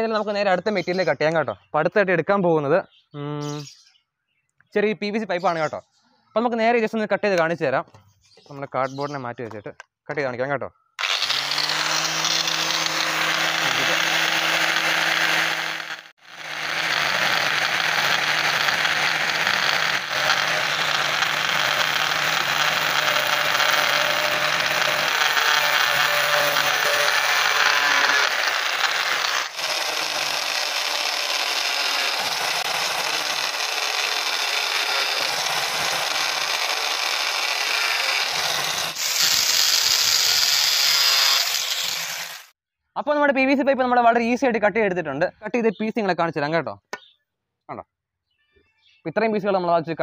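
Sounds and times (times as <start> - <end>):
angle grinder cutting plastic pipe: 11.0 - 42.6.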